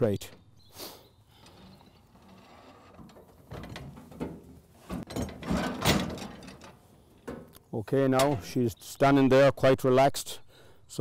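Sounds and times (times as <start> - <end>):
metal crate clanking and rattling: 1.4 - 8.6
metal knocks: 2.0 - 7.6.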